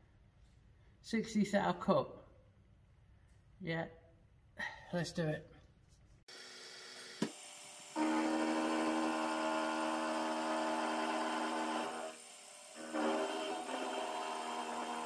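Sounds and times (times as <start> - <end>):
milling machine cutting metal: 6.3 - 15.0.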